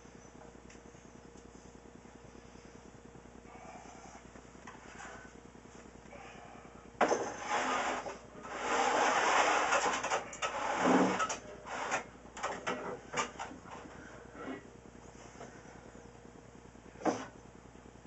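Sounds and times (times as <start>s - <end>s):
glass scraping on wooden shelf: 7.0s - 13.4s.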